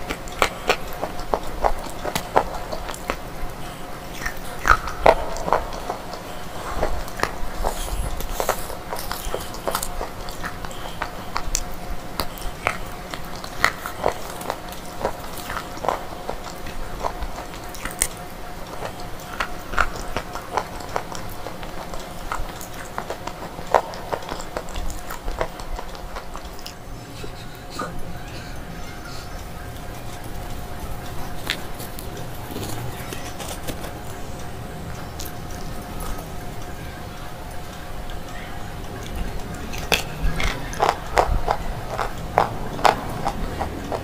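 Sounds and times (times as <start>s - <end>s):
faint steady hum: 0.0s - 44.0s
dry slate crunching: 30.0s - 36.3s.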